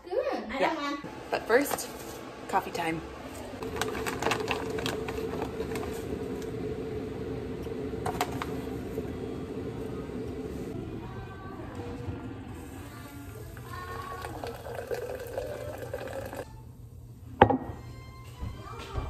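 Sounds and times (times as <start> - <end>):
appliance hum: 0.1 - 18.9
ground coffee pouring into glass: 13.6 - 16.4.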